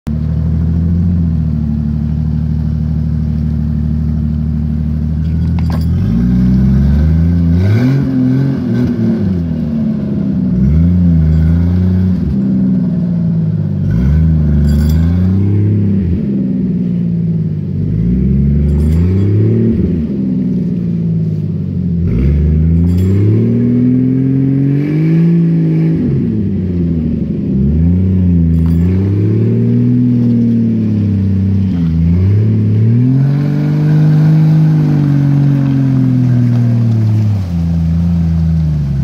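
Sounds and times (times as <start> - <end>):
suv engine revving: 0.1 - 39.0
short clanks: 5.2 - 6.3, 14.5 - 15.5, 18.6 - 19.9, 22.7 - 23.6, 28.5 - 30.6.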